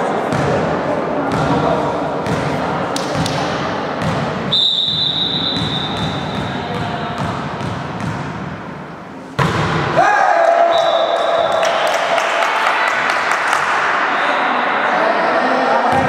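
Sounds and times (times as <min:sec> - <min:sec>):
players' voices: 0:00.0 - 0:04.6, 0:05.7 - 0:07.8, 0:09.9 - 0:16.0
volleyball bouncing on floor: 0:01.3 - 0:01.6, 0:02.2 - 0:04.4, 0:05.5 - 0:08.5, 0:09.4 - 0:09.9.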